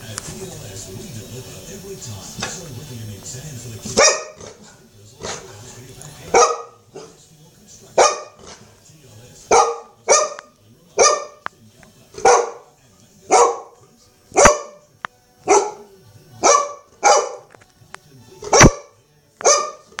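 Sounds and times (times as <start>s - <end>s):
dog barking: 3.9s - 5.6s, 6.2s - 7.2s, 7.9s - 8.7s, 9.5s - 11.5s, 12.2s - 17.6s, 18.4s - 20.0s.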